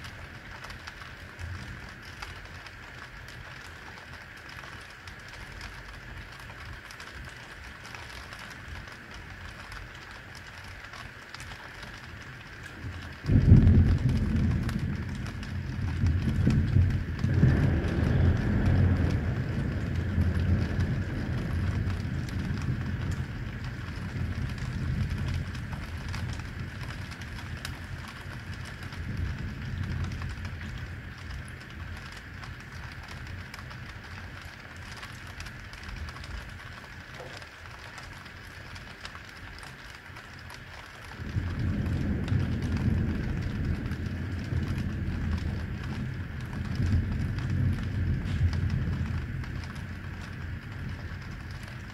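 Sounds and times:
heavy rain falling: 0.0 - 51.9
thunder rumbling: 12.8 - 51.9.

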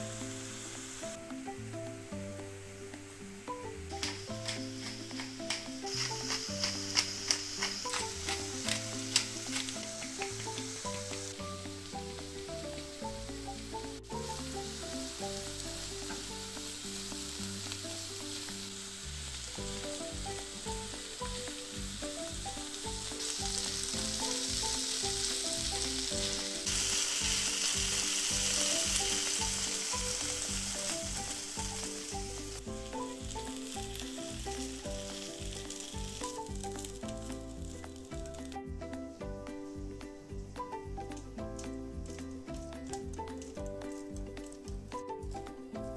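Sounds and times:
background music: 0.0 - 45.9
vegetables sizzling in a frying pan: 0.0 - 45.9
spatula stirring in a pan: 4.0 - 12.9.

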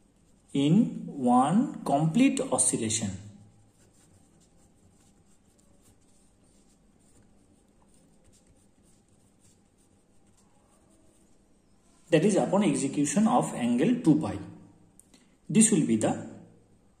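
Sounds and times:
pen scratching on paper: 3.6 - 11.8.

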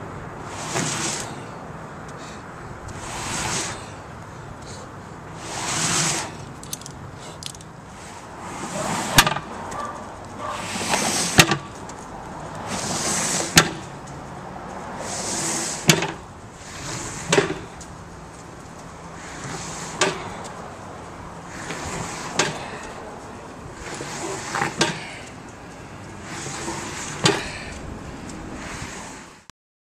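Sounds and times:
tire scraping over asphalt: 0.3 - 1.6, 2.2 - 29.5.

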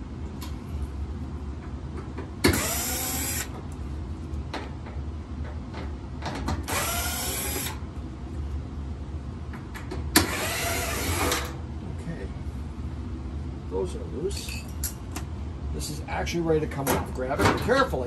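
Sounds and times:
cordless drill motor spinning: 2.5 - 3.5, 6.7 - 7.8, 10.2 - 11.5
drill click: 6.6 - 7.8.

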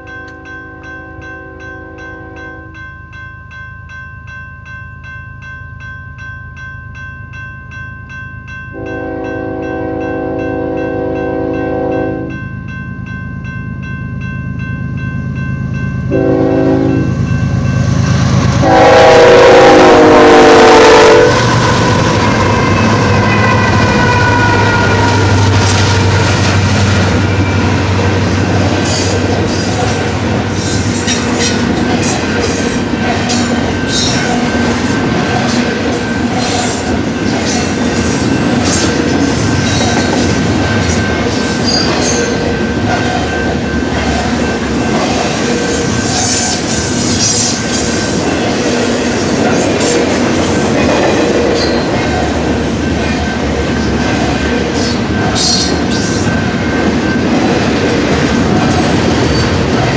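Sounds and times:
crossing bell ringing: 0.0 - 59.9
locomotive horn blasts: 0.7 - 2.6, 8.8 - 12.4, 16.1 - 17.2, 18.6 - 26.3
locomotive rumble: 15.7 - 59.9.

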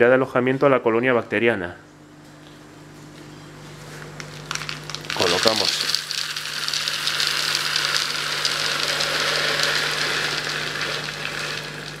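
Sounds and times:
filter media balls clattering: 4.2 - 12.0.

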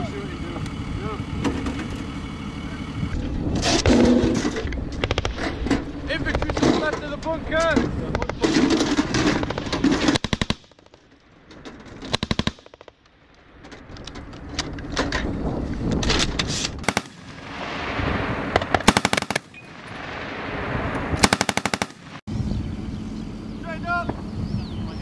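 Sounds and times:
armoured vehicle engine: 0.0 - 10.2, 12.8 - 25.0
machine gun bursts: 9.3 - 11.0, 16.8 - 17.4, 18.6 - 19.6, 21.2 - 22.2.

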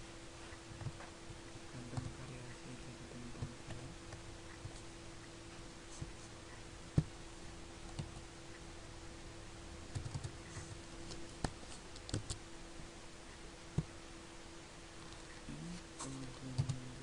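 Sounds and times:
faint steady hum: 0.0 - 17.0
computer keyboard keystrokes: 9.9 - 10.3, 11.1 - 12.4.

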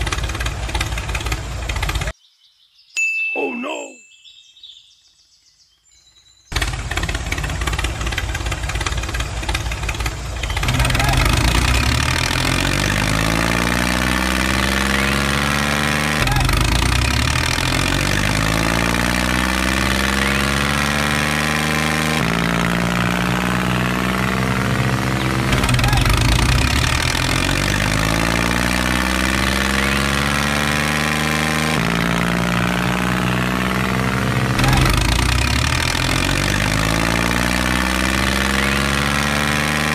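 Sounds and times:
engine revving: 0.0 - 2.1, 6.5 - 39.9.

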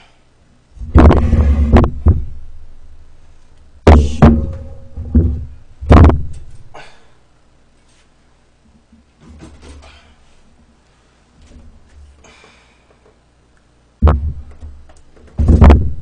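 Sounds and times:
metal tray ringing: 3.9 - 5.2
metal knocks and clatters: 3.9 - 6.7.

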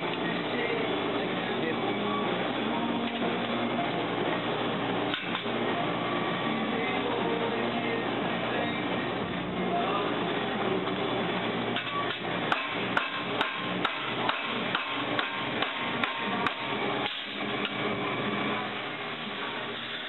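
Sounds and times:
hammer striking metal: 12.5 - 17.2.

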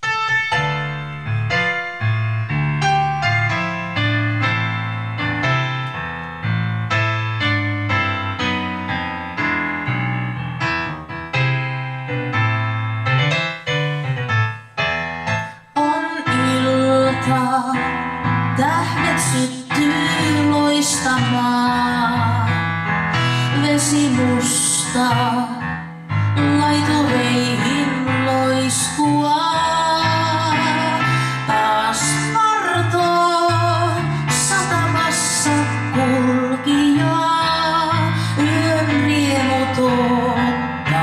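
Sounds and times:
piano backing track: 0.0 - 41.0
woman singing into a microphone: 15.6 - 41.0.

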